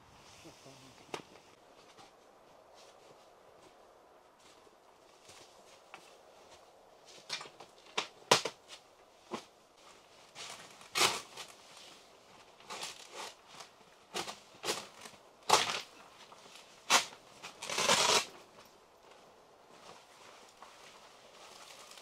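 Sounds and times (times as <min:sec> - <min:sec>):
rustling: 0:00.1 - 0:22.0.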